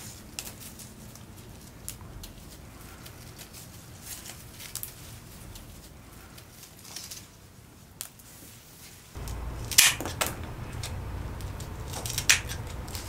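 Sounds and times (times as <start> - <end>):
flower stems rustling: 0.0 - 13.0
scissors snipping stems: 9.2 - 13.0.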